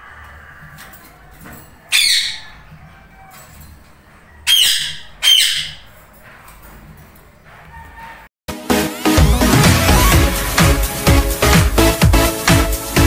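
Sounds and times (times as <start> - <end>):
parakeets squawking harshly: 1.9 - 2.6, 4.4 - 6.0.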